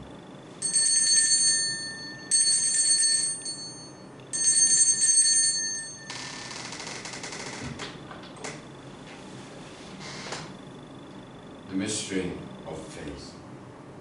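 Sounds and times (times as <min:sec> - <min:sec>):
altar bells ringing: 0:00.6 - 0:06.4.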